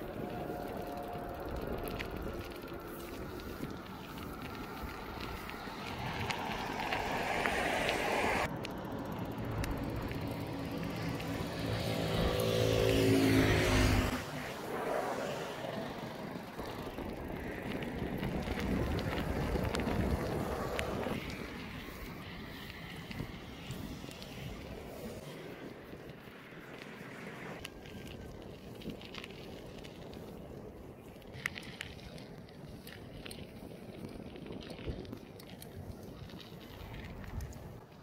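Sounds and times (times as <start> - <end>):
vehicle passing by: 0.0 - 22.2
road traffic passing: 0.0 - 28.4.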